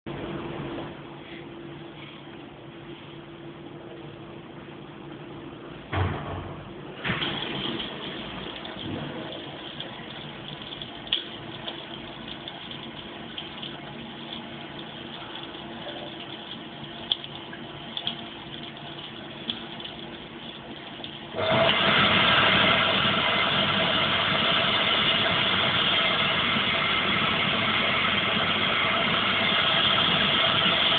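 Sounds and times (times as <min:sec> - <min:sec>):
water trickle: 0:07.0 - 0:22.0
loud water rushing: 0:21.3 - 0:30.9.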